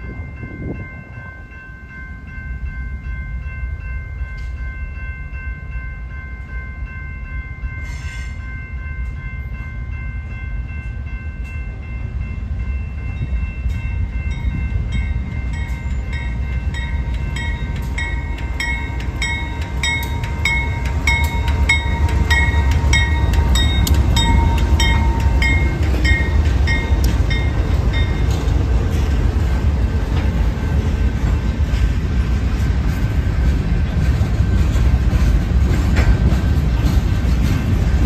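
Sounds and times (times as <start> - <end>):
bell-like ringing: 0.0 - 28.4
diesel locomotives running: 0.0 - 38.0
train wheels rumbling on rail: 0.0 - 38.0.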